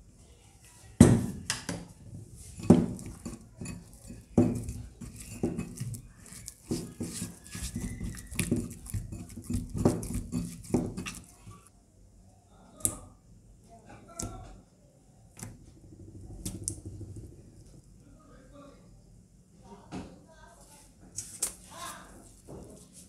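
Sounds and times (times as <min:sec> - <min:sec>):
slime squelching and smacking: 0:02.5 - 0:11.7.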